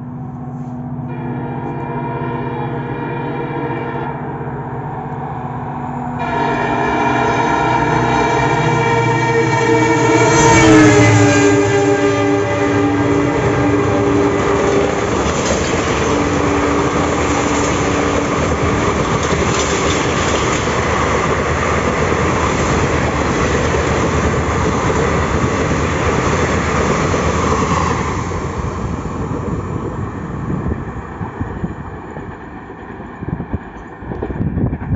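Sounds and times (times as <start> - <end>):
train wheels rumbling on rails: 4.4 - 34.9.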